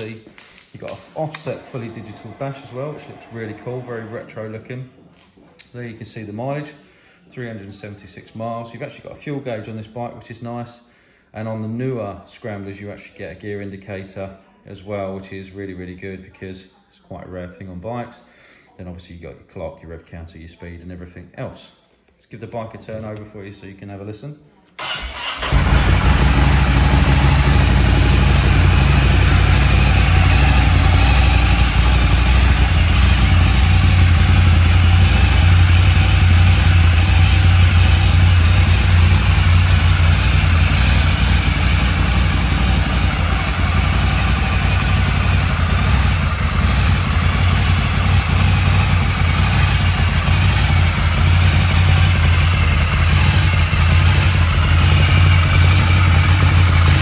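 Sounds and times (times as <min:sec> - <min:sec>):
motorcycle engine idling: 0:25.2 - 0:57.0.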